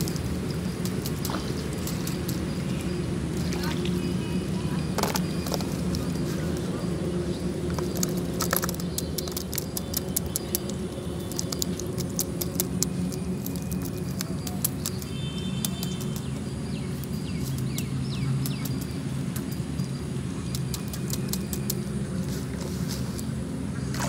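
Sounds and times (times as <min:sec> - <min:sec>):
steady low hum: 0:00.0 - 0:24.0
fish flapping in plastic basin: 0:07.7 - 0:15.1.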